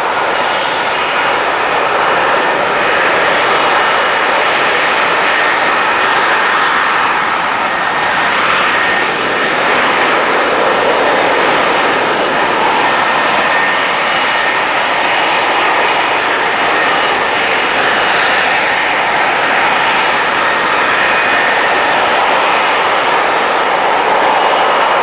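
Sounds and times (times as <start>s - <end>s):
jet engine running: 0.0s - 25.0s.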